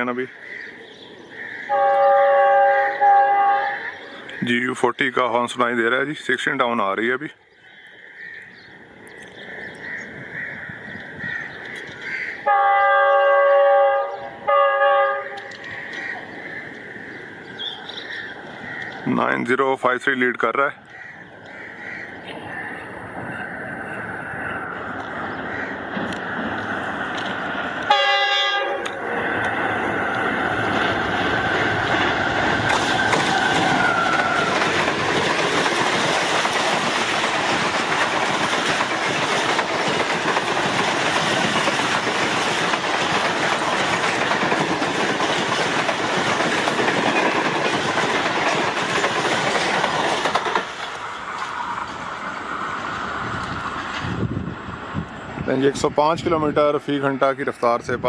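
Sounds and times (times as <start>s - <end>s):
locomotive horn: 1.7s - 4.0s, 12.4s - 15.6s, 27.8s - 29.0s
train coaches rushing past: 8.7s - 58.0s
wheels clickety-clack: 28.8s - 52.0s.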